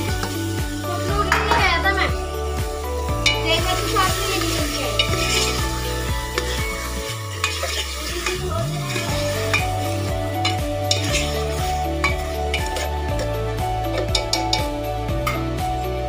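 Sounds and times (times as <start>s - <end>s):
potato wedges sizzling in oil: 0.0s - 15.6s
spatula scraping metal pot: 3.2s - 13.4s.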